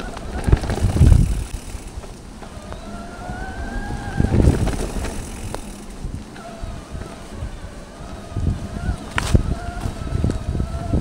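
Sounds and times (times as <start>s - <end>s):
tyre rumble: 0.0s - 7.2s
electric bike motor whining: 0.0s - 11.0s
wind on microphone: 0.0s - 11.0s.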